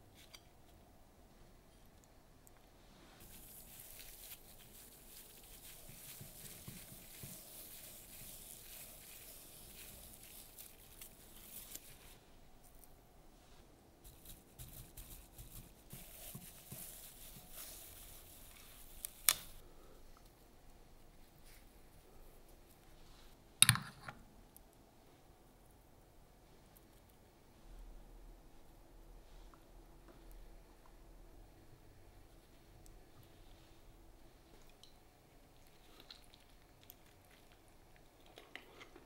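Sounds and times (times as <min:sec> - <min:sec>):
soft handling noises: 0:00.0 - 0:25.2.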